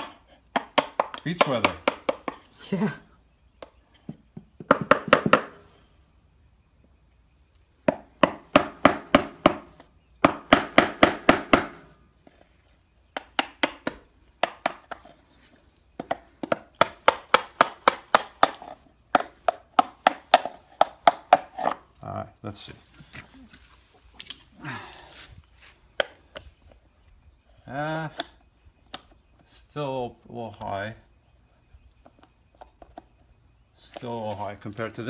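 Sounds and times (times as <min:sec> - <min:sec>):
hammer tapping wood chisel: 0:00.0 - 0:02.5, 0:13.1 - 0:15.1, 0:16.0 - 0:21.8.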